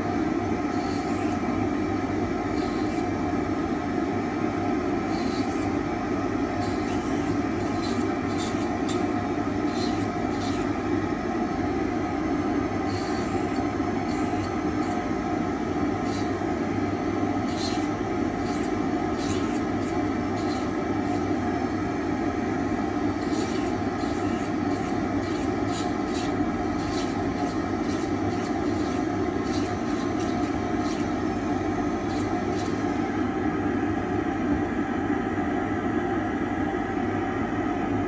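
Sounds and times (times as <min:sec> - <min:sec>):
dust extractor running: 0:00.0 - 0:34.1
short scratchy grinding bursts: 0:06.6 - 0:09.0, 0:09.7 - 0:10.7, 0:17.4 - 0:21.2, 0:23.2 - 0:31.1
disc grinding ceramic: 0:06.6 - 0:10.7, 0:17.4 - 0:21.3, 0:23.2 - 0:31.2.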